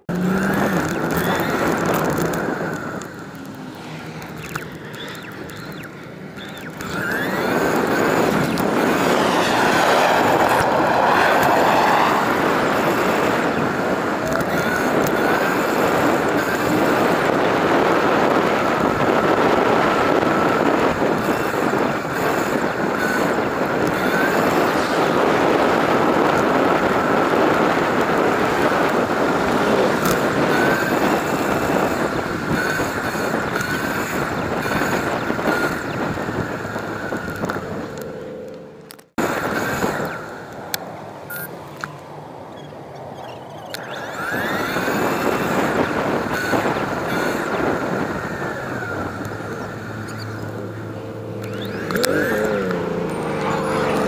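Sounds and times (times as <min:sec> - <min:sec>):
bicycle road noise: 0:00.0 - 0:54.0
wind rushing: 0:05.7 - 0:37.9.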